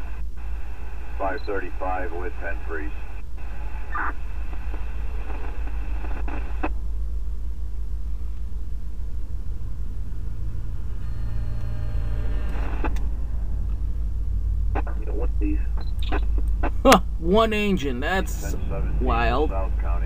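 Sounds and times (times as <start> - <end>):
radio static: 0.0 - 6.8, 10.9 - 13.2, 14.7 - 20.0.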